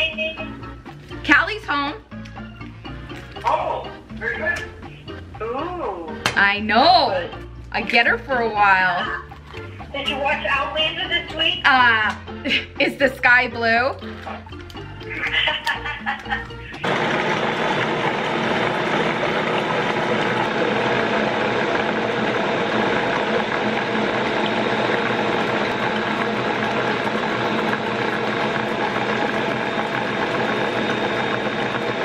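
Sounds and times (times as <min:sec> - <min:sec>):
stand mixer whirring: 0:16.8 - 0:32.0.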